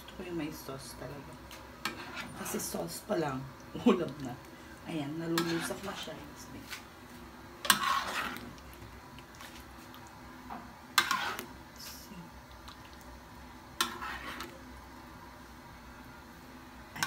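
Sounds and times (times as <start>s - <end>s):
thick stew squelching: 7.6s - 10.3s, 11.0s - 11.7s, 13.8s - 14.6s.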